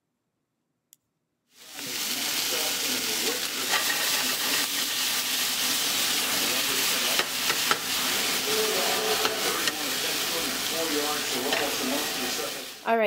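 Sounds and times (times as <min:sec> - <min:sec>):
asparagus sizzling in frying pan: 0:01.6 - 0:13.0.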